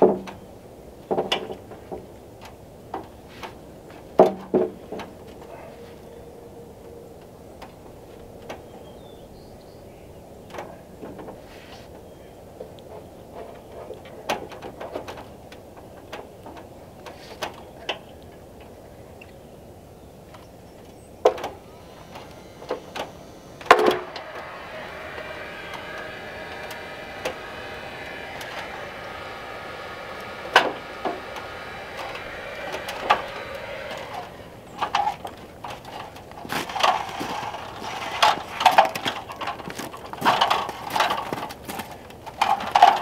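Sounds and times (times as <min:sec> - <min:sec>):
steady machine whine: 0:21.0 - 0:43.0.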